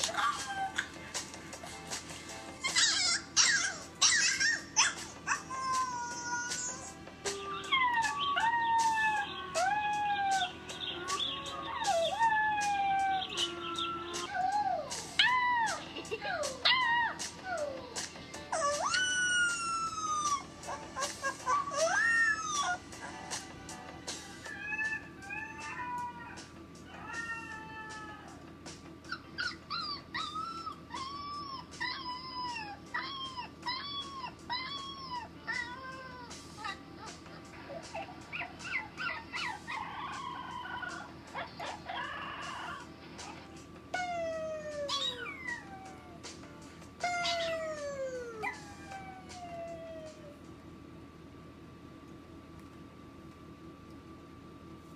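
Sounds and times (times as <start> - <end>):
puppies howling: 0.0 - 1.0, 2.6 - 28.5, 29.1 - 37.1, 37.7 - 46.4, 47.0 - 50.5.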